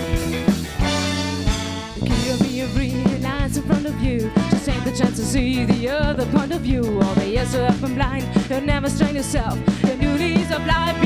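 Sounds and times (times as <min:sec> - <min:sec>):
horn section playing: 0:00.0 - 0:02.5, 0:04.4 - 0:05.2, 0:10.5 - 0:11.0
drum kit: 0:00.0 - 0:11.0
electric guitar: 0:00.0 - 0:11.0.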